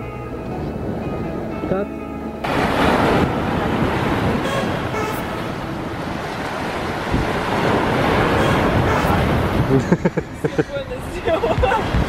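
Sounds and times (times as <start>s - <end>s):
wind buffeting microphone: 0.0s - 12.0s
sea surf: 0.4s - 12.0s.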